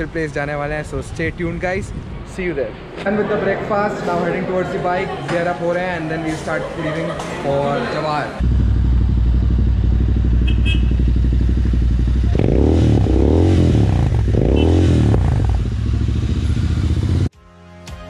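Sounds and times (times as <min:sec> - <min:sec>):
motorcycle engine idling and revving: 0:08.4 - 0:17.3.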